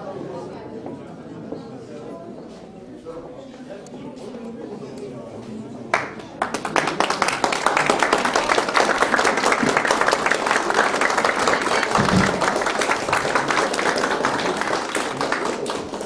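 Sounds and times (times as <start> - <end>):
crowd applauding: 5.9 - 16.0.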